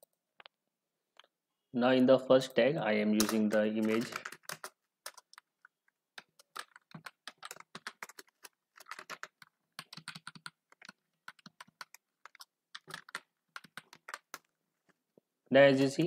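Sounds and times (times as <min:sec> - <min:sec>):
typing on computer keyboard: 0:03.2 - 0:14.5.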